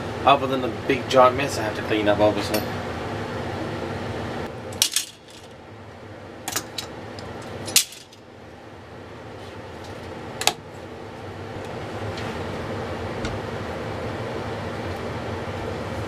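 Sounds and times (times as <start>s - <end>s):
steady background hum: 0.0s - 16.0s.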